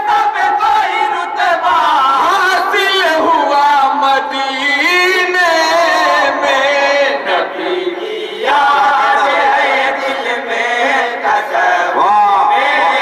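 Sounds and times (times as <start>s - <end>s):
men chanting in unison: 0.0s - 13.0s.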